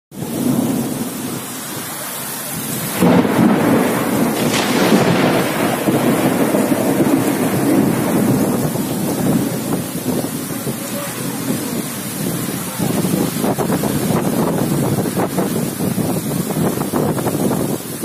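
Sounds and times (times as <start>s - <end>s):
continuous thunder rumble: 0.1s - 18.0s
gusting wind: 0.1s - 18.0s
heavy rain pouring: 0.1s - 18.0s.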